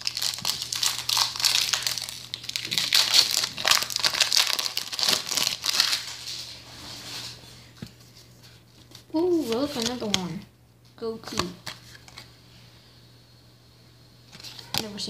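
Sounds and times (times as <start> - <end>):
card pack wrapper crinkling: 0.0 - 6.5, 8.9 - 10.2.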